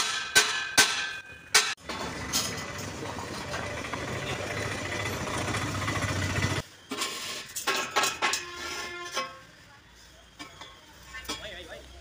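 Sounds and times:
engine-like rumble: 0:01.8 - 0:06.6.

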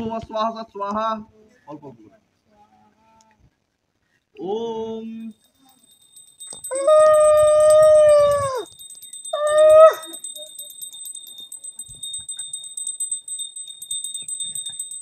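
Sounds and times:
small bell ringing: 0:05.2 - 0:15.0.

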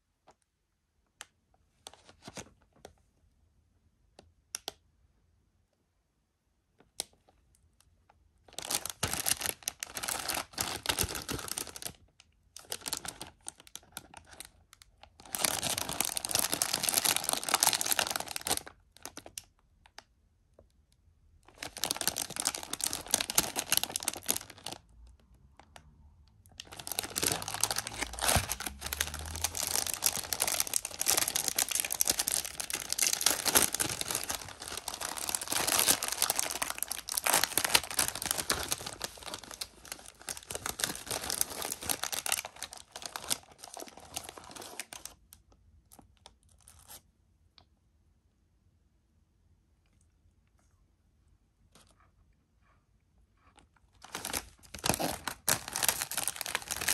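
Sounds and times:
plastic wrapper crinkling and tearing: 0:01.8 - 0:03.0, 0:06.8 - 0:20.1, 0:21.4 - 0:47.0, 0:53.8 - 0:56.9.

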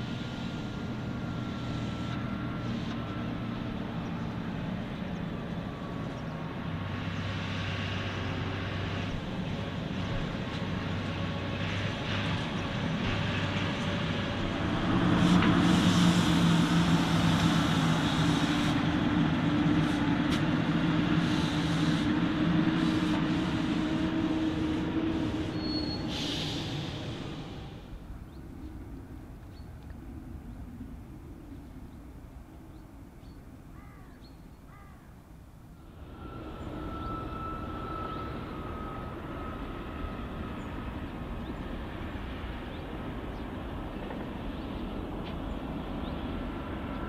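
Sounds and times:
tractor diesel engine running: 0:00.0 - 0:29.3.

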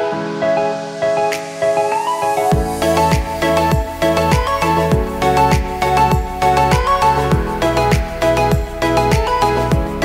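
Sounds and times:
background music with light beat: 0:00.0 - 0:10.0.

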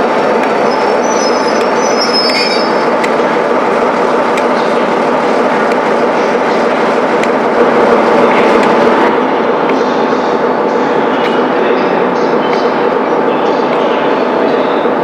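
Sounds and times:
diesel locomotive engine and wheels: 0:00.0 - 0:15.0
high wheel squeals: 0:00.6 - 0:02.9.

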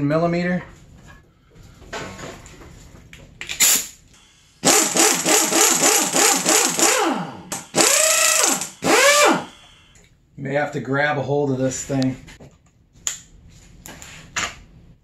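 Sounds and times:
pneumatic impact wrench hammering: 0:04.6 - 0:09.6.

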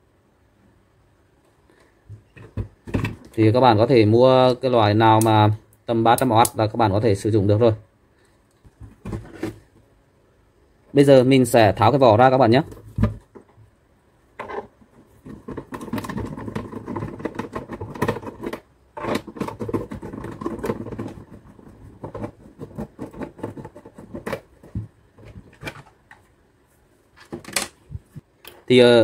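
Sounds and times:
plastic handling: 0:01.8 - 0:03.5, 0:08.5 - 0:09.9, 0:14.4 - 0:26.3, 0:27.1 - 0:28.7
screwdriver clicking and scraping plastic: 0:14.4 - 0:26.2.

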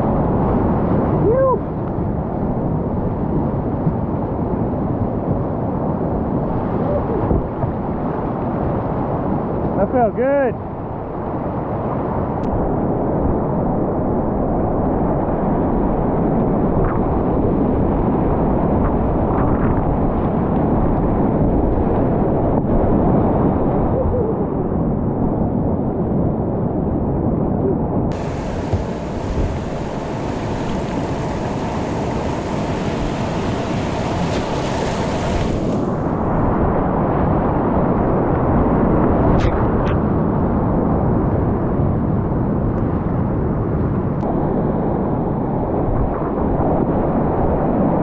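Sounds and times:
whitewater rapids rushing: 0:28.1 - 0:36.2.

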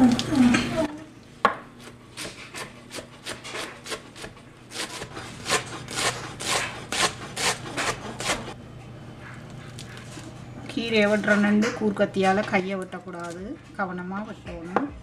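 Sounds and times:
knife chopping greens on board: 0:01.4 - 0:08.6.

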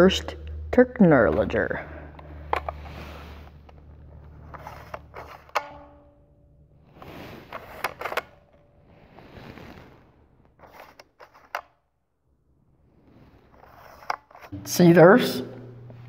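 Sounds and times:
faint steady hum: 0:00.0 - 0:09.0, 0:12.2 - 0:16.0
plastic gadget clicking: 0:07.5 - 0:08.4.

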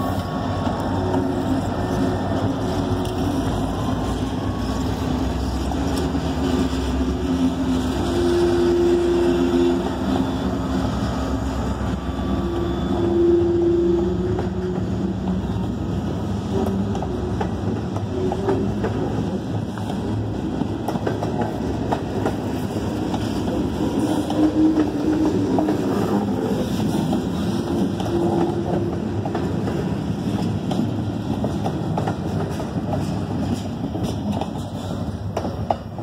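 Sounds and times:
rumble of train wheels on rail: 0:00.0 - 0:36.0
wheels clicking over rail joints: 0:14.3 - 0:36.0.

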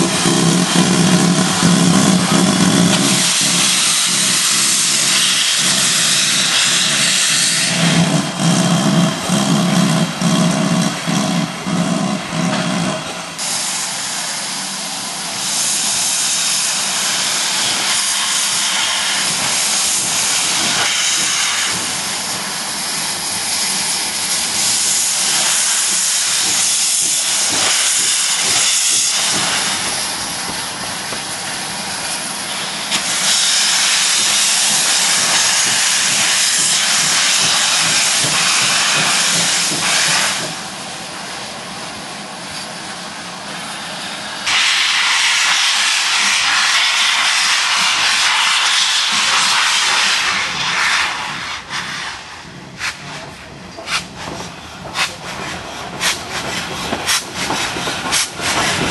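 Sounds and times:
steam locomotive hissing steam: 0:00.0 - 0:58.9.

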